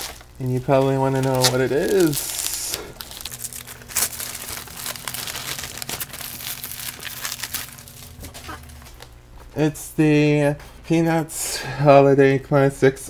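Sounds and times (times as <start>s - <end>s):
packaging crinkling: 0.0s - 9.4s.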